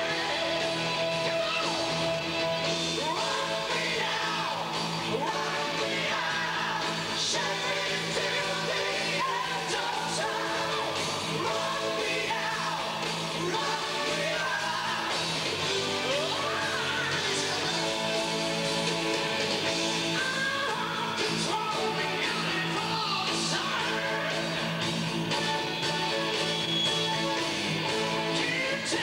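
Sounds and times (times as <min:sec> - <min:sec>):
live hard rock band: 0:00.0 - 0:29.0
man singing: 0:02.9 - 0:18.1, 0:20.1 - 0:24.8, 0:28.1 - 0:29.0.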